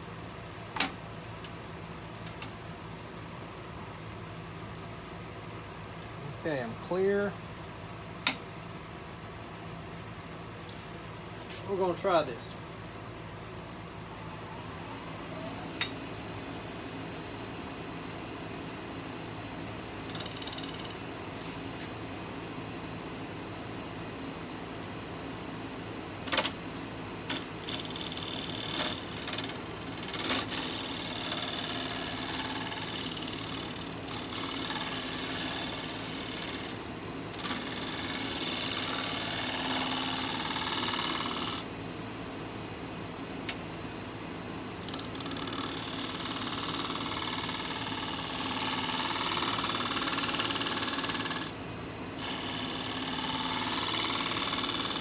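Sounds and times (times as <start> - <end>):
wood lathe humming: 27.6 - 41.6, 44.9 - 51.6, 52.2 - 55.0.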